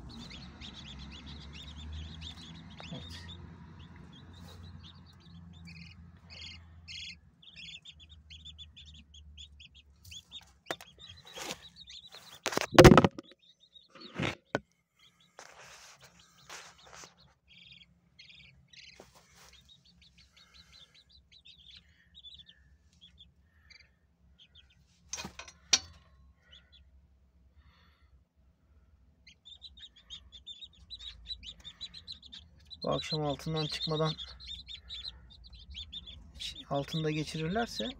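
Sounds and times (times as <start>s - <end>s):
chicks peeping: 0.0s - 14.4s, 15.0s - 26.9s, 29.2s - 37.9s
sharp knocks: 12.5s - 13.4s
rustling: 15.3s - 17.4s, 18.9s - 19.8s.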